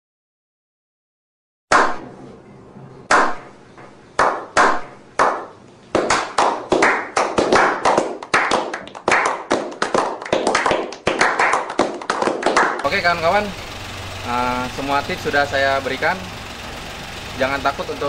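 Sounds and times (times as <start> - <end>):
people clapping: 4.2 - 12.9.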